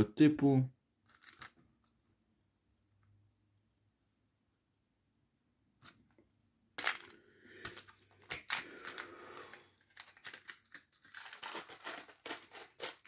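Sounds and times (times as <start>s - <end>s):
plastic bag crinkling: 1.1s - 1.6s, 6.8s - 13.0s.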